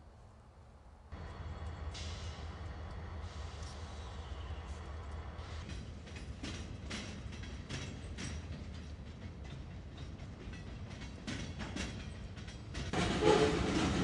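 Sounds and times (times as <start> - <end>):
freight train rumbling past: 1.0 - 14.0
wheels clicking over rail joints: 4.9 - 14.0.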